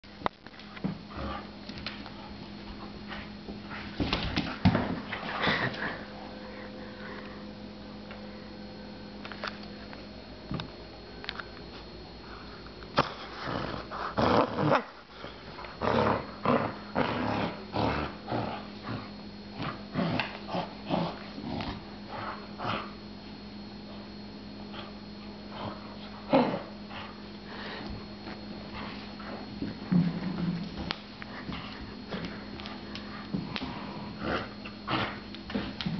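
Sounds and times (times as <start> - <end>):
puppy snuffling and growling: 12.9 - 23.0, 28.8 - 35.8.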